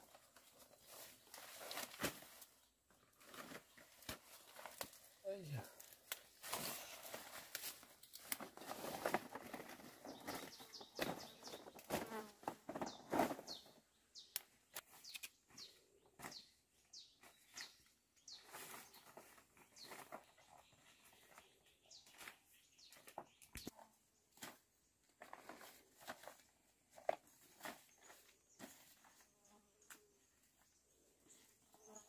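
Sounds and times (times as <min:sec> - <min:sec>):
foliage rustling and snapping: 0:03.3 - 0:05.2, 0:05.8 - 0:09.6.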